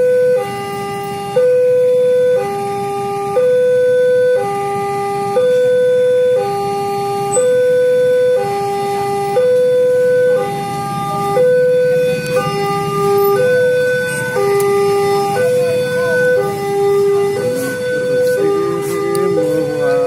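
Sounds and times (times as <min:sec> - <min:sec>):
level crossing two-tone alarm: 0:00.0 - 0:20.0.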